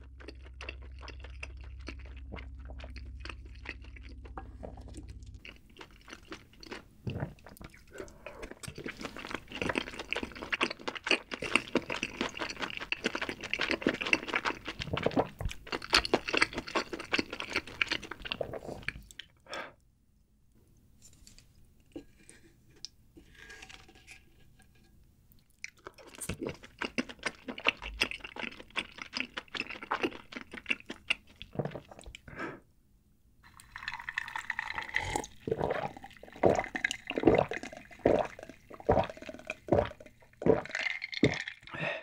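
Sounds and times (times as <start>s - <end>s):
mouth sounds of eating: 0.0s - 19.8s, 34.9s - 42.0s.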